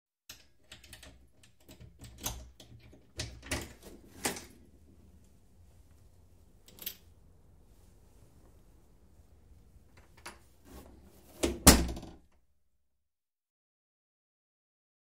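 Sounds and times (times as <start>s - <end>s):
door lock clicking and rattling: 0.3s - 4.5s.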